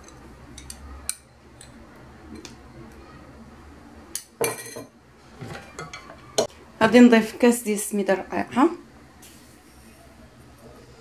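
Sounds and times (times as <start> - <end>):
metal spoon clinking on dishes: 4.1 - 4.9.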